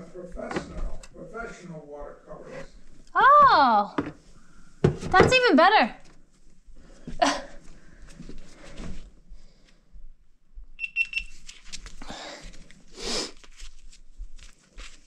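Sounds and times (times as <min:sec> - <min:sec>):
camera beeps: 0:10.8 - 0:11.4.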